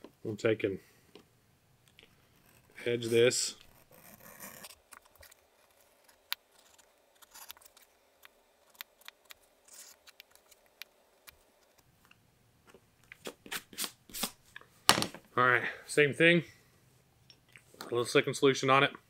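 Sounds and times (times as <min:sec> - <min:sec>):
tool scraping leather edge: 0:02.3 - 0:07.8.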